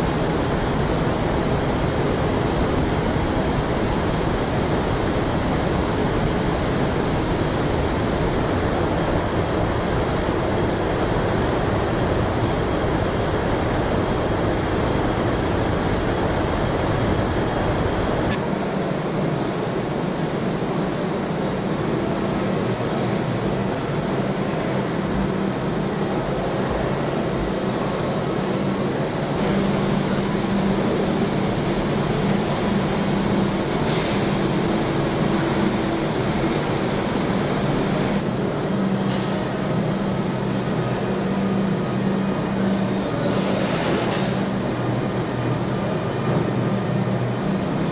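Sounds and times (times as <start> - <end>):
low steady hum: 0.0 - 18.4
machinery and ventilation drone: 0.0 - 47.9.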